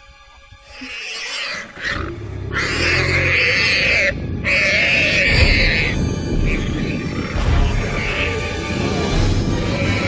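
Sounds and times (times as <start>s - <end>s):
warthog squealing: 0.6s - 8.6s, 9.6s - 10.0s
low rumble: 2.0s - 9.9s.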